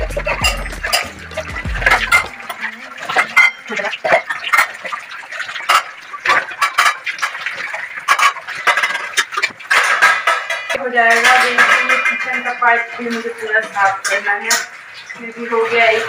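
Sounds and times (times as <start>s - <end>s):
background music: 0.0s - 3.2s
steel dishes clattering in a rack: 0.0s - 16.0s.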